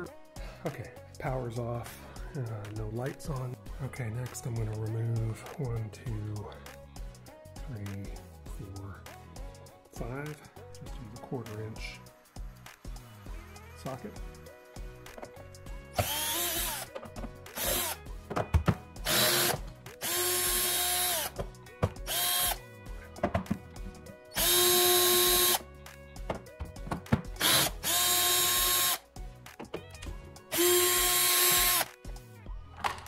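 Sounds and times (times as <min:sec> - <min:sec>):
cordless drill bursts: 0:16.0 - 0:16.9, 0:17.6 - 0:18.0, 0:19.0 - 0:21.4, 0:22.1 - 0:22.6, 0:24.4 - 0:25.6, 0:27.4 - 0:29.0, 0:30.5 - 0:31.9.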